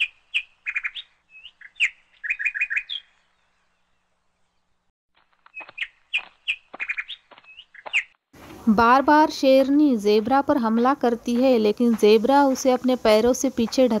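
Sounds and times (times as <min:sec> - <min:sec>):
small bird chirping: 0:00.0 - 0:08.2.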